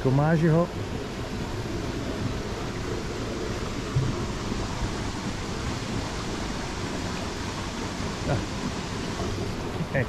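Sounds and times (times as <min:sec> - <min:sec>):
flowing water: 0:00.0 - 0:10.0
low thump: 0:03.9 - 0:04.3.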